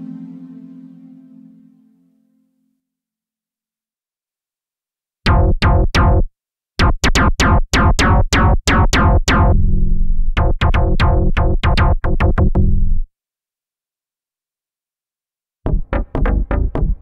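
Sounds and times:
synthesizer plucked bass notes: 5.3s - 13.0s, 15.7s - 17.0s.

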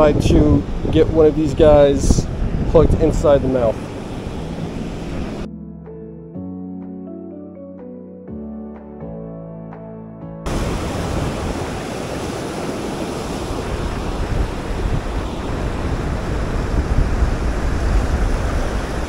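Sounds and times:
wind buffeting microphone: 0.0s - 5.5s, 10.5s - 19.0s
surf breaking over rocks: 10.5s - 19.0s.

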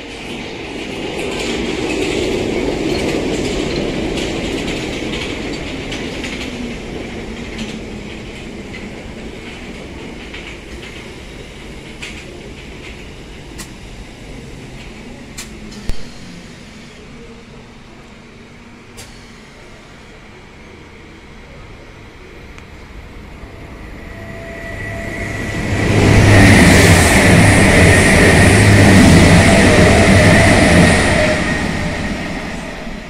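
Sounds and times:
train running noise: 0.0s - 33.0s
train brakes whining: 18.9s - 20.8s, 22.7s - 33.0s.

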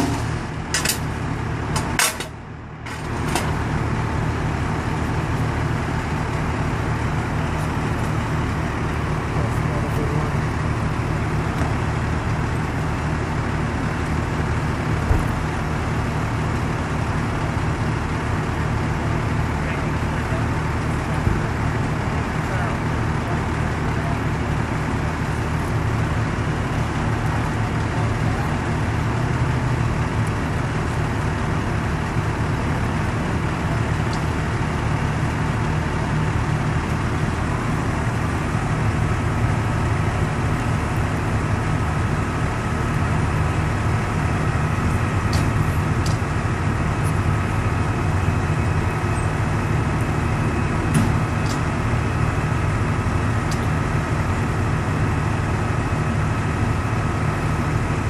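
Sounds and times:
diesel engine idling: 0.0s - 58.0s.

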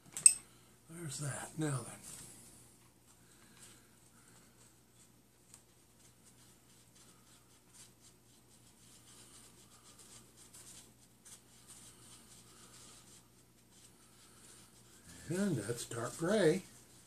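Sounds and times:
tool stirring glue on styrofoam: 7.9s - 17.0s.

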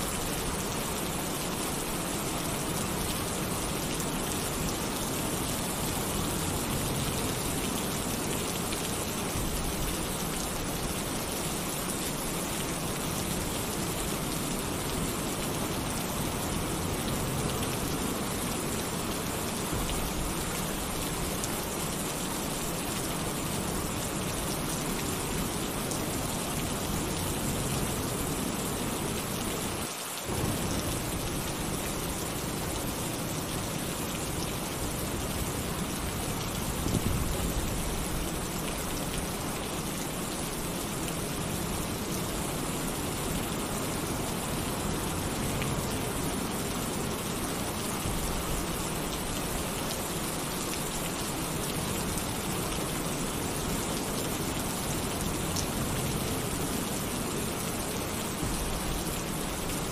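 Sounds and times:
heavy rain on a tin roof: 0.0s - 59.9s
thunder rumbling: 30.3s - 31.4s.

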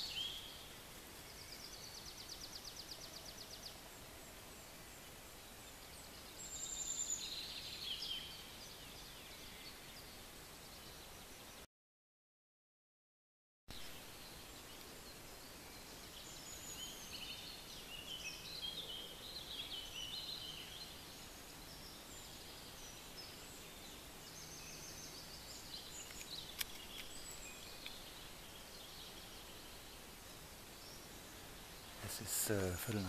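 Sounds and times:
faint outdoor hiss: 0.0s - 11.7s, 13.7s - 33.0s
small birds chirping: 0.0s - 11.7s, 13.7s - 33.0s
sharp click: 26.0s - 27.2s.

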